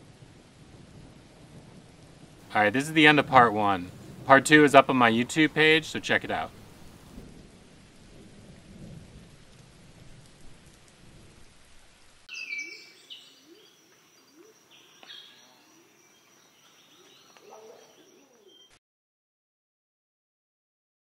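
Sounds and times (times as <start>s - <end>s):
steady rain: 0.0s - 12.3s
birds chirping: 12.3s - 18.8s.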